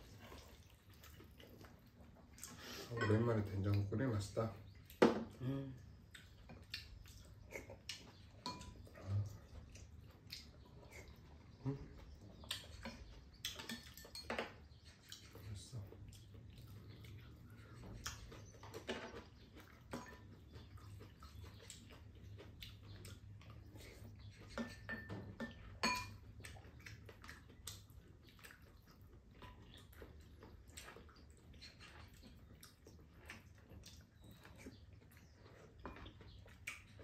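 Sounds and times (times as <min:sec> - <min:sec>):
chewing and slurping: 0:00.0 - 0:37.0
utensils tapping ceramic bowls: 0:08.4 - 0:08.8, 0:24.6 - 0:26.2.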